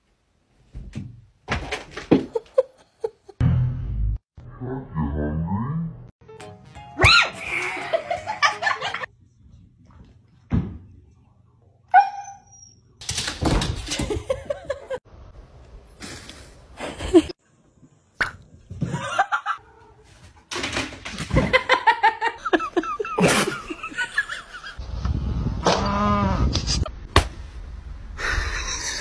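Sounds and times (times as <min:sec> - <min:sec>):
people laughing: 0:07.4 - 0:09.1, 0:21.4 - 0:24.8.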